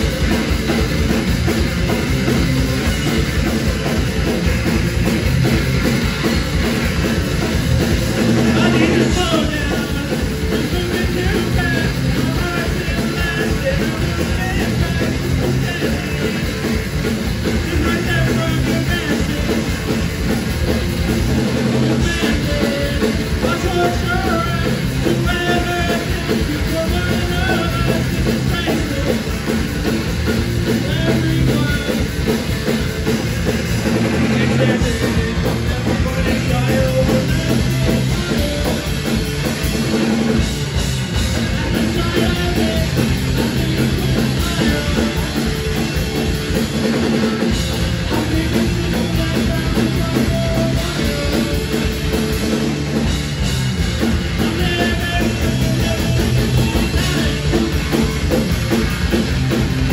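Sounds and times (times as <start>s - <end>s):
drum kit: 0.0s - 59.9s
electric guitar: 0.0s - 59.9s
person singing: 8.4s - 19.9s, 22.0s - 29.7s, 30.6s - 32.3s, 34.0s - 39.5s, 41.3s - 52.4s, 54.3s - 58.4s.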